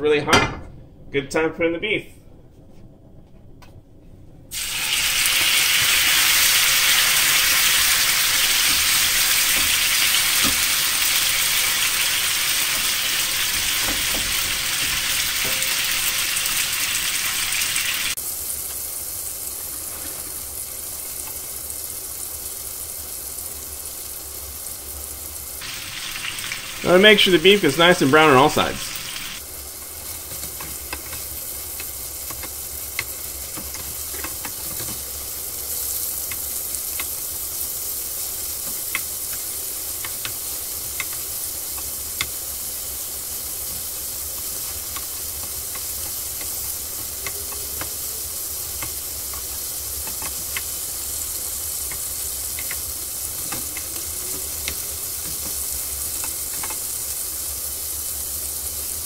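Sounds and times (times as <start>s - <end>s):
meat sizzling in frying pan: 4.5s - 59.0s
spatula clicking in pan: 40.0s - 42.4s, 48.8s - 50.8s, 51.8s - 52.9s.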